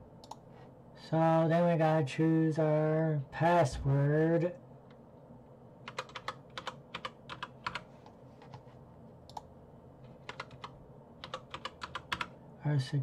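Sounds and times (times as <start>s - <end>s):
computer keyboard keystrokes: 5.9s - 7.8s, 10.2s - 12.3s.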